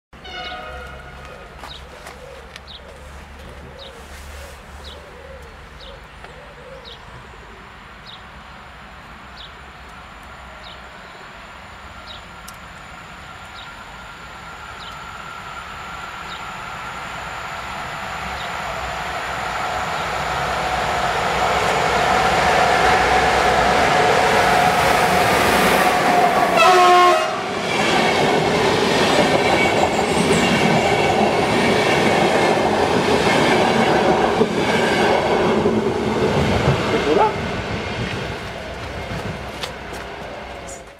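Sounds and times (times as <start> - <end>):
train rushing on rails with whine: 0.2 - 40.9.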